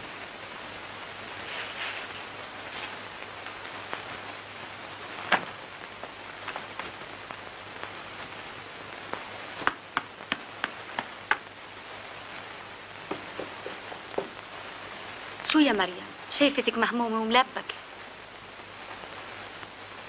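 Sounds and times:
film soundtrack hiss: 0.0 - 20.0
dough slapping by hand: 9.6 - 11.4.

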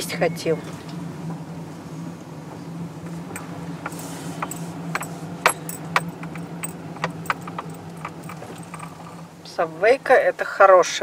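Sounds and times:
car cabin hum: 0.0 - 10.3
light clicks and rattles: 3.1 - 9.3.

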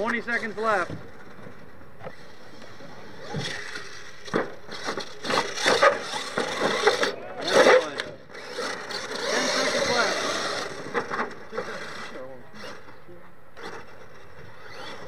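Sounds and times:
toy truck crashing in dirt: 3.3 - 11.7
toy truck knocking over wood: 4.2 - 7.1.

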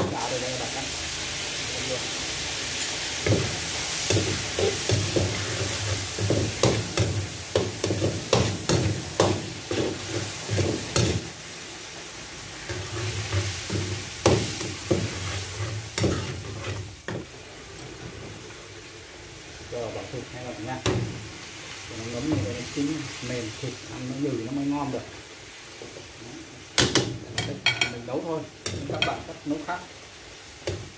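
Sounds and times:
meat sizzling in a pan: 0.0 - 30.9
spatula knocking on pan: 6.2 - 9.9.

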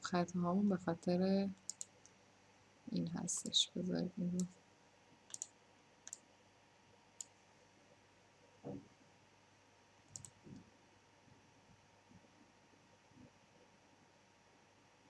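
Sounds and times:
mouse and keyboard clicks: 1.6 - 1.9, 10.1 - 10.4.

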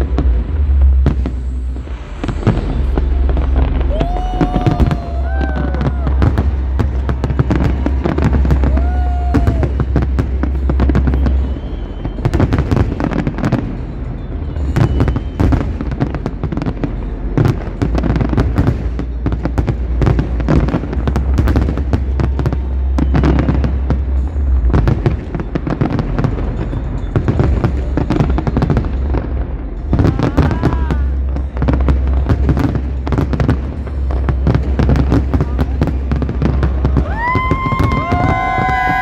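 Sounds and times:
fireworks bangs and crackles: 0.0 - 39.0
low rumble: 0.0 - 39.0.

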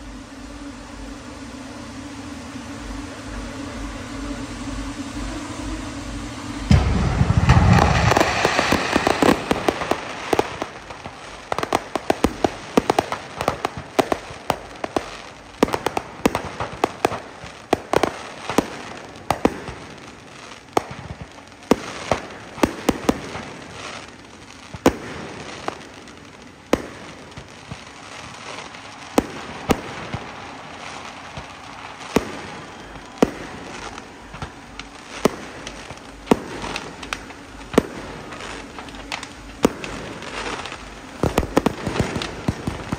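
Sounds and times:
fireworks banging and crackling: 0.0 - 42.9.

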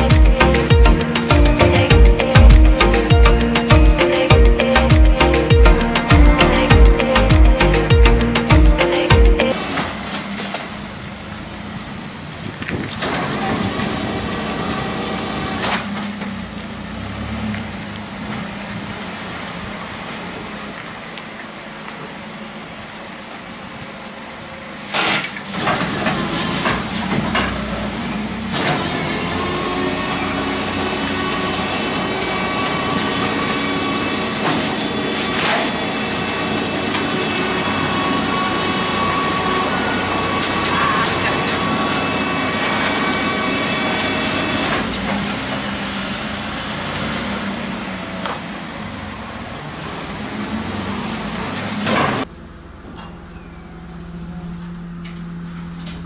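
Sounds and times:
garbage truck engine running: 0.0 - 12.4, 13.0 - 56.0
compactor whine: 25.8 - 45.4.

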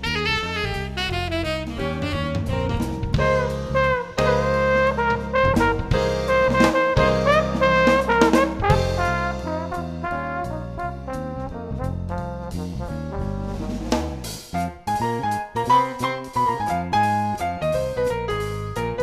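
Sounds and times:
brass horns: 0.0 - 14.3
bass: 0.0 - 19.0
drums: 0.0 - 19.0.

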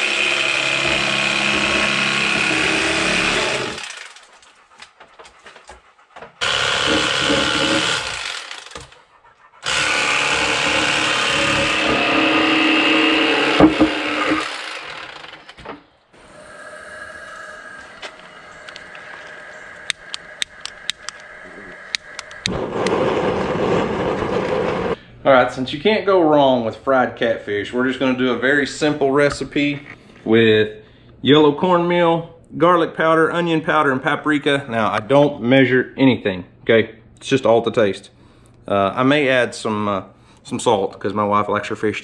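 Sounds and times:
electric knife motor buzzing: 0.0 - 4.1, 6.4 - 9.0, 9.6 - 15.5
lighter clicking: 19.9 - 22.5.

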